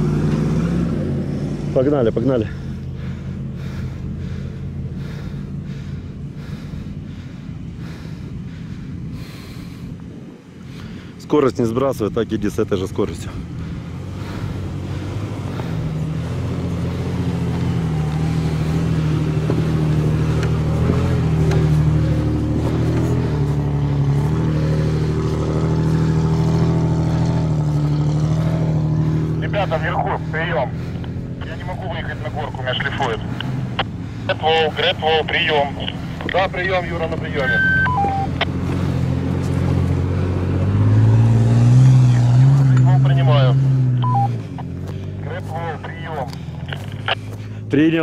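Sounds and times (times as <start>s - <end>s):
engine running at low revs: 0.0s - 48.0s
heavy breathing: 2.4s - 11.2s, 13.2s - 37.2s, 44.4s - 47.8s.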